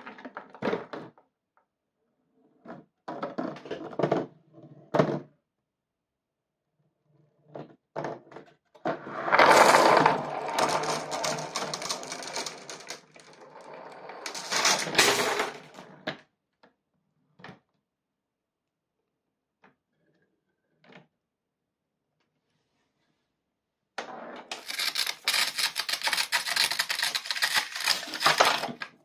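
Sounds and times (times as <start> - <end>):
marble rolling: 8.8 - 16.1, 24.1 - 29.0
marbles rattling down chutes: 9.2 - 15.8, 24.5 - 29.0.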